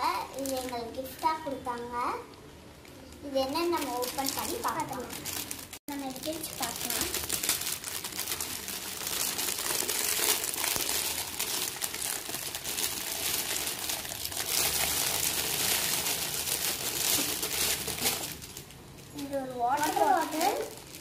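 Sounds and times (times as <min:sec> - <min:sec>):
plastic wrapping crinkling: 0:00.0 - 0:01.8, 0:02.8 - 0:21.0.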